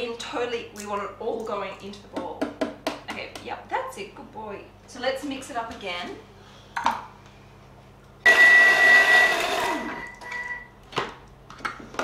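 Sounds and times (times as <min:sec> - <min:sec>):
food processor motor whirring: 0:08.3 - 0:10.1.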